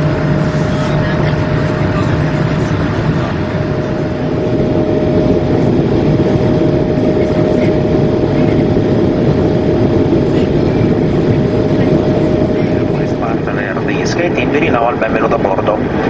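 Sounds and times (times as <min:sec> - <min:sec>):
airliner cabin airflow rush: 0:00.0 - 0:16.0
steady hum tone: 0:00.0 - 0:16.0.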